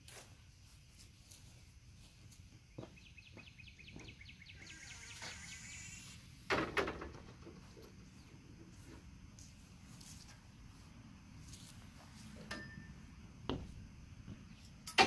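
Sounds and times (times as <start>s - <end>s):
quick high bird chirps: 3.1s - 6.2s.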